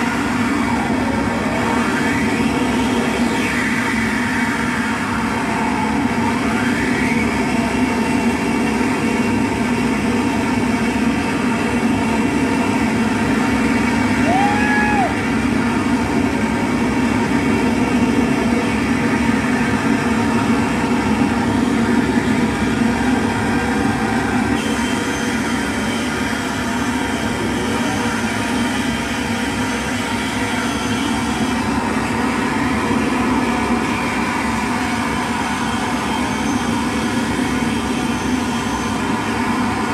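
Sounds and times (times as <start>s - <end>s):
droning electronic noise music: 0.0s - 39.9s
rising whistle: 13.9s - 15.8s, 19.6s - 32.6s.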